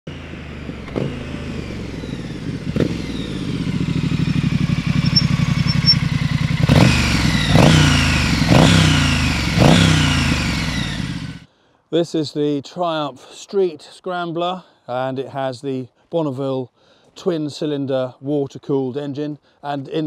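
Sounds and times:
motorcycle engine revving: 0.1 - 11.5.

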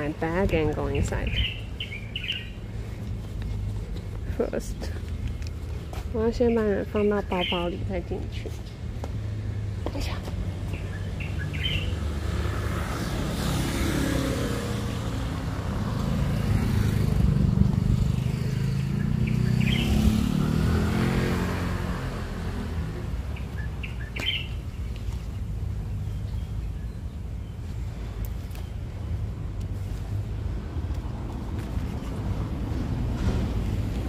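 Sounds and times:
low traffic rumble: 0.0 - 34.0
vehicle engine passing by: 11.5 - 23.4.

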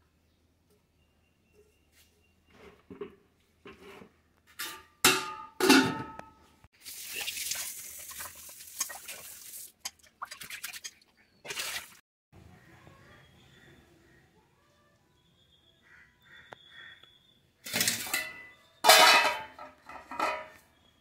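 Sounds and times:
tap water running and splashing: 6.8 - 12.0
steel bowls clanking: 17.7 - 20.6.

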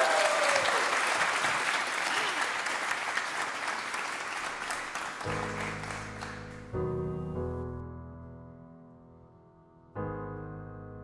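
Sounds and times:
audience applauding: 0.0 - 6.8
grand piano chord: 5.3 - 11.0.

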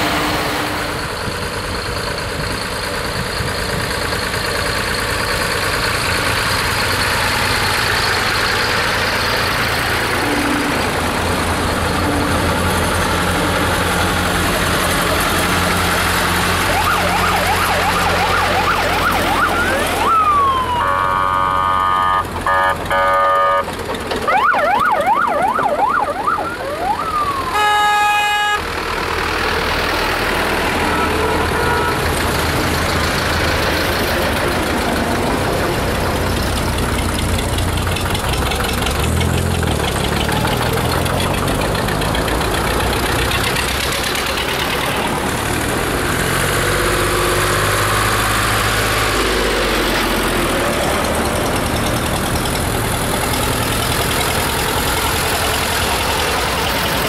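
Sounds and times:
tractor engines running: 0.0 - 57.0
siren yelping and wailing: 16.6 - 22.2, 24.2 - 28.0
horn blasts: 20.7 - 23.8, 27.4 - 28.8, 30.7 - 32.2.

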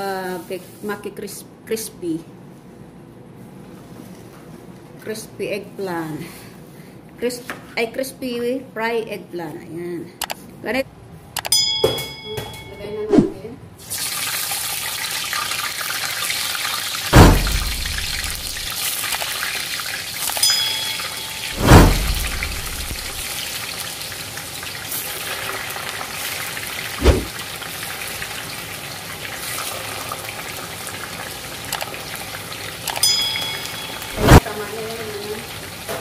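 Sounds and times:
deep-frying sizzle: 13.8 - 36.0
heavy dull thumps: 17.1 - 18.6.

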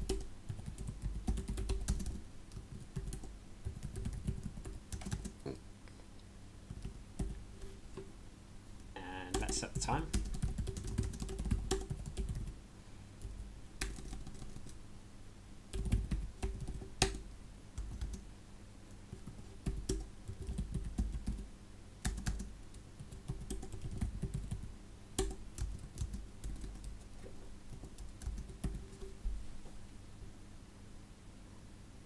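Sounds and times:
keyboard typing: 0.0 - 5.4, 6.7 - 7.4, 9.1 - 12.6, 13.2 - 14.8, 15.7 - 17.2, 17.8 - 18.2, 19.1 - 21.4, 22.0 - 29.2.

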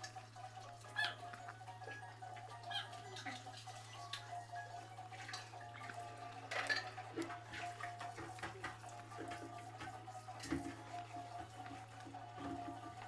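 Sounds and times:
eating clicks scrapes and rustles: 5.0 - 13.0
plate clatter: 6.5 - 10.8.

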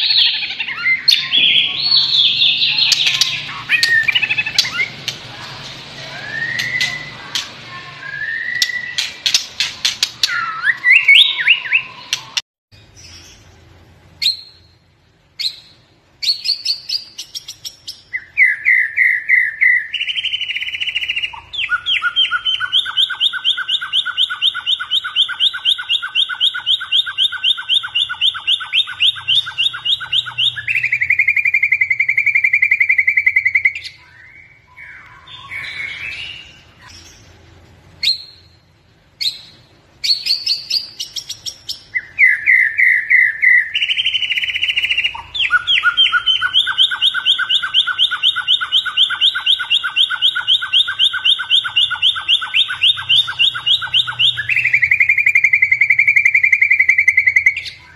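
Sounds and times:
bird singing fluting whistles: 6.1 - 7.3, 8.0 - 9.4, 10.2 - 12.3, 15.4 - 36.5, 39.2 - 57.9.

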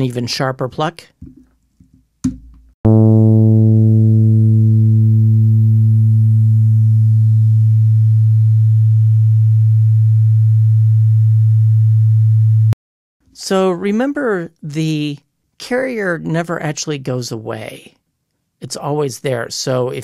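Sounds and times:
synthesized pluck tone: 2.9 - 12.8.

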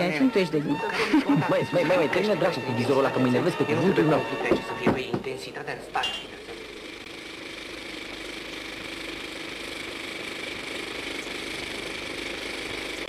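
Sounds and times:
film camera motor whirring: 6.3 - 13.0.

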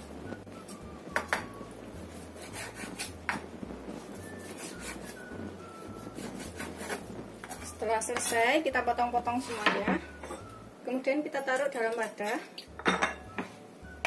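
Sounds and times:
knife strokes knocking on cutting board: 2.4 - 3.5.

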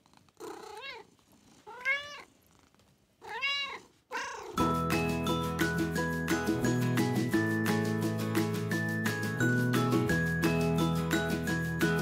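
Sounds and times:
cat meowing: 0.4 - 2.3, 3.2 - 4.6
music: 4.6 - 12.0.

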